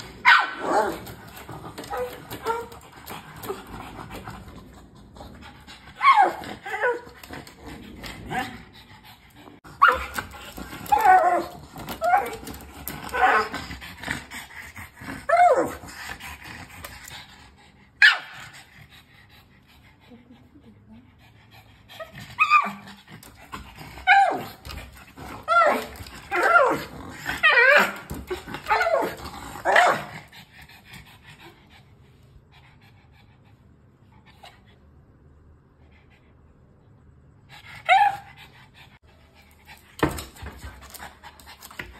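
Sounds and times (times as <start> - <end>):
dog whining barks: 0.2 - 1.0, 9.8 - 10.2.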